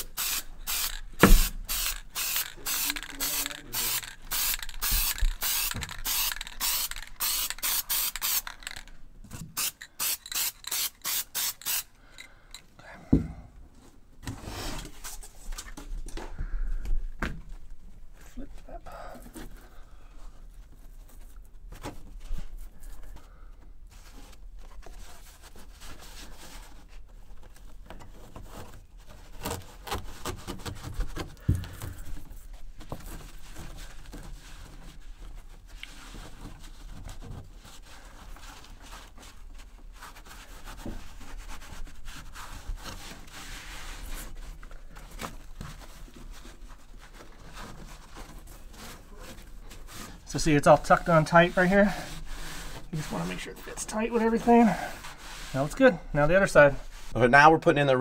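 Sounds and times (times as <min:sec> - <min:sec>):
carpet scraping and rustling: 0:13.7 - 0:16.1, 0:19.2 - 0:57.2.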